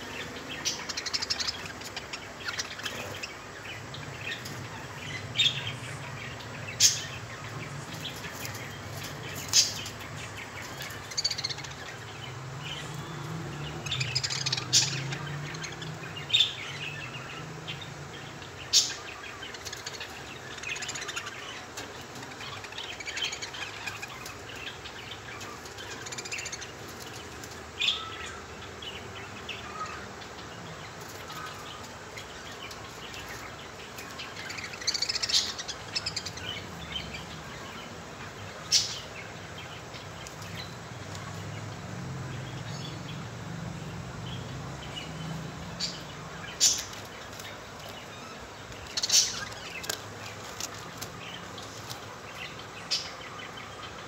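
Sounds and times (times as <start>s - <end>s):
parrots chirping: 0.0s - 41.5s, 44.2s - 54.0s.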